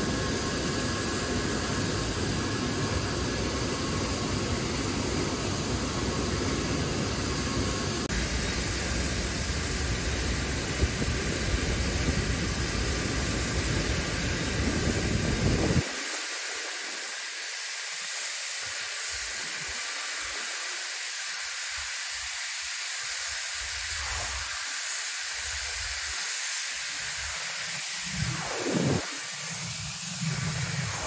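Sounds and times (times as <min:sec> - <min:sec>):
jet engines hissing: 0:00.0 - 0:22.3, 0:23.4 - 0:31.0
wind buffeting microphone: 0:08.3 - 0:15.8.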